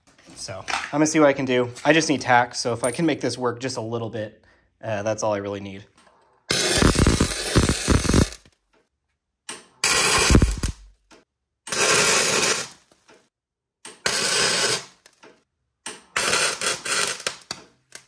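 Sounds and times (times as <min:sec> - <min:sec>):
welder arc crackling: 0:06.5 - 0:08.5, 0:09.8 - 0:10.9.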